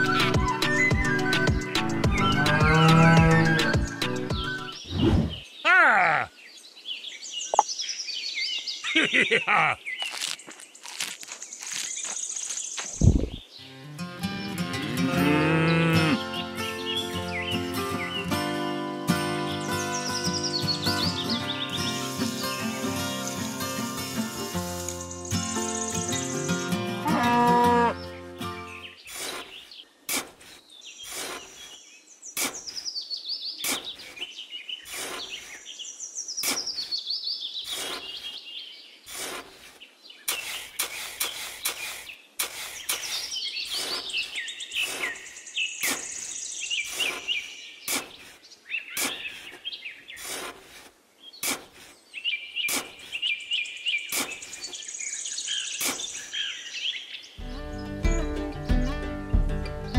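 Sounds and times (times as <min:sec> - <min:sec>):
birds chirping and trilling: 0:00.0 - 0:59.9
plucked guitar tune: 0:13.7 - 0:15.2, 0:57.4 - 0:59.9
hand tool scraping damp sand: 0:29.0 - 0:32.9, 0:33.6 - 0:35.7, 0:36.4 - 0:37.0, 0:37.6 - 0:38.4, 0:39.0 - 0:53.3, 0:54.0 - 0:54.8, 0:55.7 - 0:56.4.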